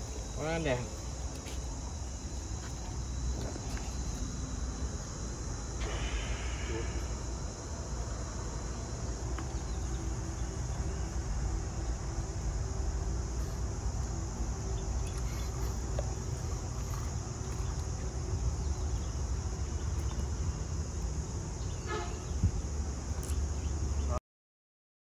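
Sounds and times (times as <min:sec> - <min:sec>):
high-pitched insect chorus: 0:00.0 - 0:24.2
low outdoor rumble: 0:00.0 - 0:24.2.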